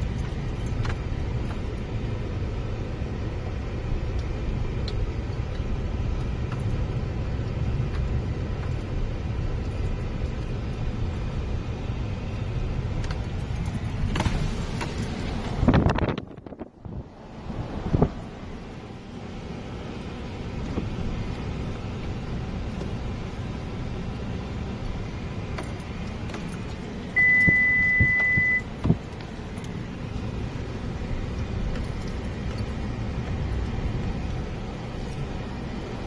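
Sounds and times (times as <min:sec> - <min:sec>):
car engine and tyre rumble: 0:00.0 - 0:36.0
high beep: 0:27.2 - 0:28.7.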